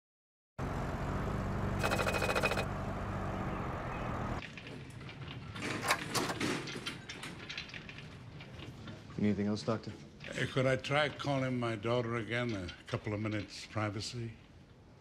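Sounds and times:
outdoor night ambience: 0.6 - 15.0
car engine running: 1.5 - 2.7.

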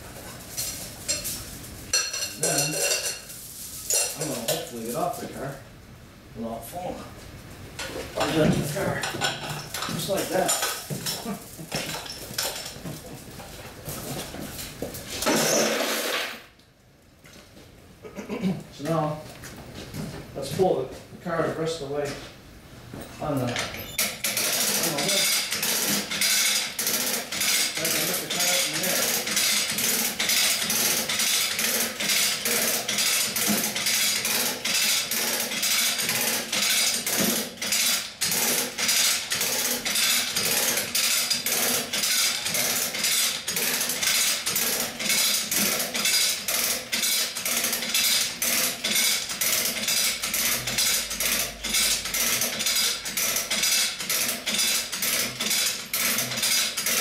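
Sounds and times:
winch clicking and rattling: 23.9 - 57.0.

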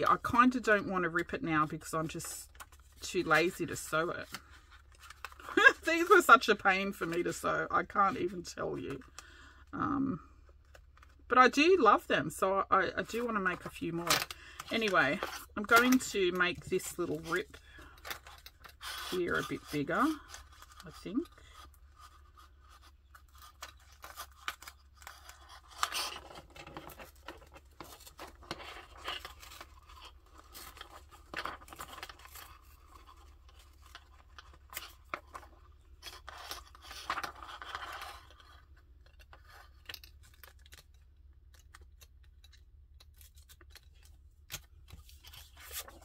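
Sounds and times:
paper and plastic rustling: 13.1 - 46.0.

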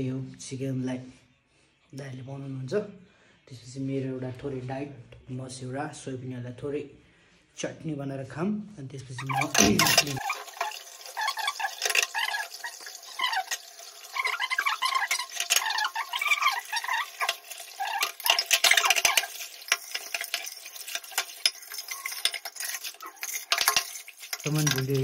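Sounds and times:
sizzling or running water hiss: 9.2 - 25.0
utensils scraping pots: 9.2 - 25.0.

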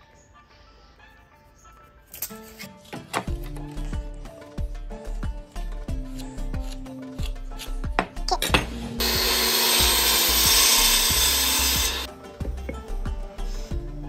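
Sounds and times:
mitre saw cutting wood: 9.0 - 12.1.

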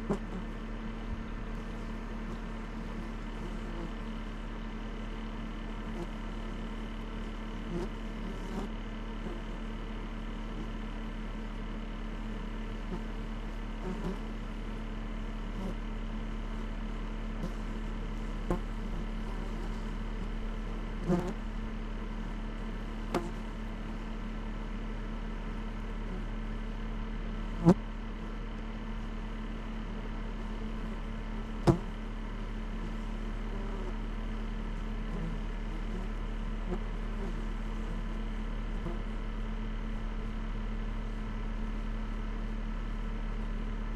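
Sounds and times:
car engine and road drone: 12.2 - 43.9.

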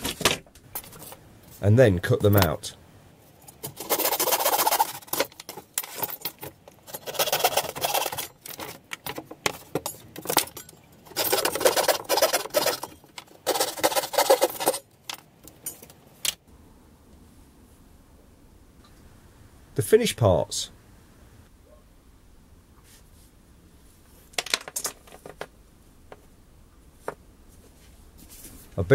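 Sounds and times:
plywood clicking and rattling: 3.5 - 16.4, 24.4 - 26.2
hacksaw sawing plywood: 3.7 - 5.4, 7.0 - 8.3, 11.1 - 14.8.

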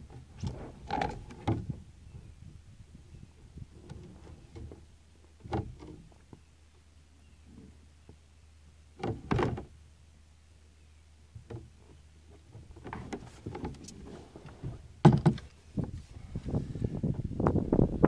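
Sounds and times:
wind rumble on microphone: 0.0 - 6.3, 12.5 - 18.0.

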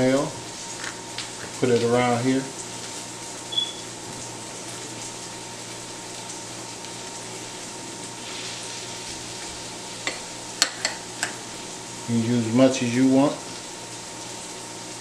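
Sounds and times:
steady hiss: 7.3 - 14.1.

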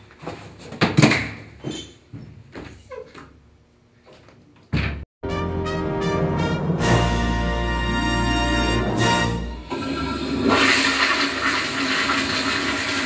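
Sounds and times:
door banging shut: 4.7 - 5.1
music: 5.2 - 9.7.

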